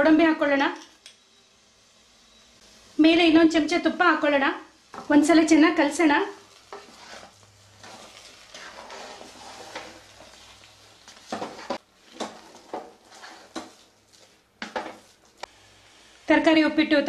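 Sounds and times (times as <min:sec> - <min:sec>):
wooden spatula scraping a pan: 0:06.3 - 0:15.4.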